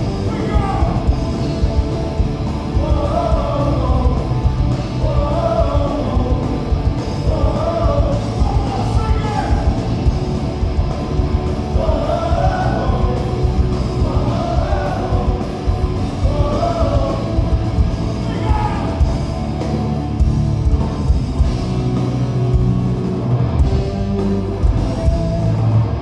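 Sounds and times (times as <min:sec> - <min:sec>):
punk rock band playing: 0:00.0 - 0:26.0
person singing: 0:02.7 - 0:09.8, 0:11.7 - 0:17.5.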